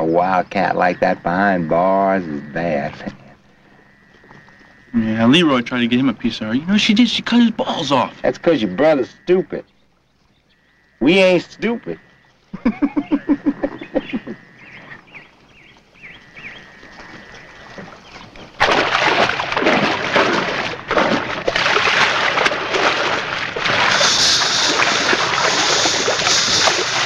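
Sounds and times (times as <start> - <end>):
birds chirping: 0.0 - 21.9, 23.4 - 27.0
animal splashing in shallow water: 13.2 - 27.0.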